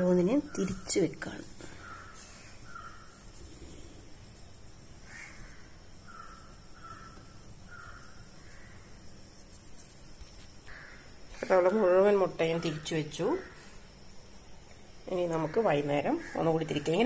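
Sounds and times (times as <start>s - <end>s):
crows cawing: 1.7s - 3.2s, 5.0s - 8.8s, 10.7s - 11.1s.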